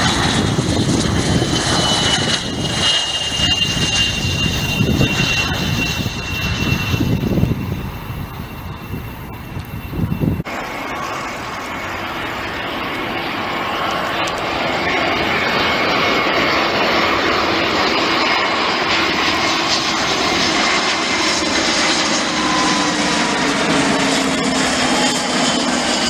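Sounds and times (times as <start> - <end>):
jet engines whining: 0.0 - 26.0.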